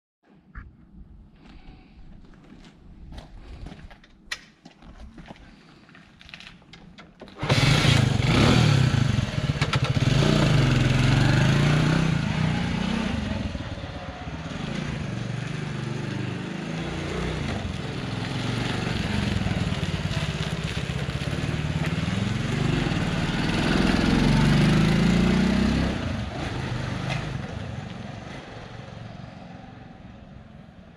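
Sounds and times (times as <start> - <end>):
motorcycle engine revving: 7.4 - 29.8.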